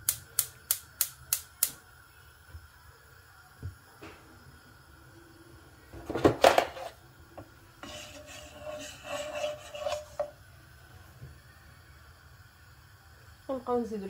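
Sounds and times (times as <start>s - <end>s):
wooden spoon scraping pan: 6.6s - 7.0s, 7.8s - 10.4s.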